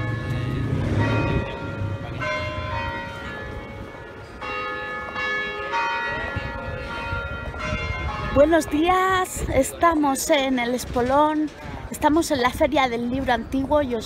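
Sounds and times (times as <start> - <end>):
church bells ringing: 0.0 - 9.3.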